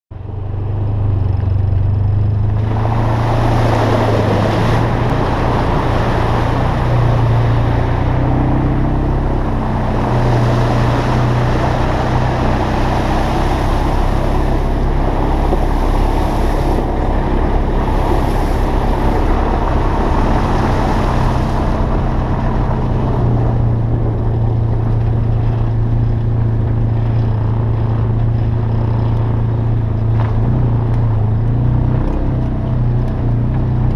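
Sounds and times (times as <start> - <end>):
off-road vehicle engine running: 0.1 - 33.9
wind rushing: 2.5 - 26.0.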